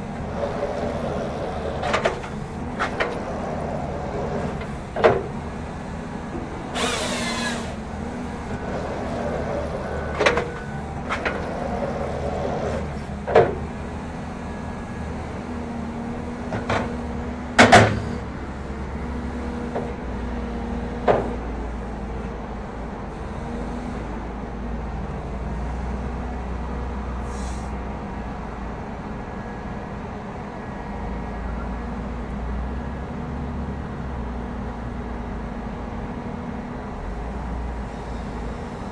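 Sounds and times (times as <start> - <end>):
diesel engine running: 0.0 - 38.9
short hiss: 27.2 - 27.8.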